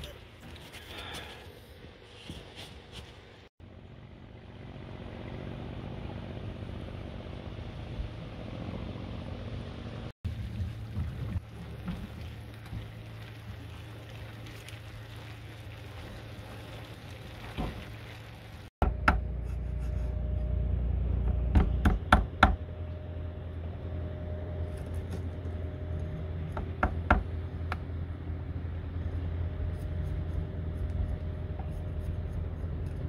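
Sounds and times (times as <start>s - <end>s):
low motor hum: 3.6s - 33.0s.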